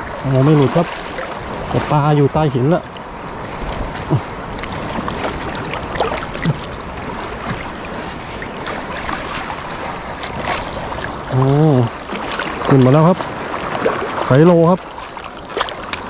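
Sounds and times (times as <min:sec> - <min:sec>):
sea water sloshing over rocks: 0:00.0 - 0:16.0.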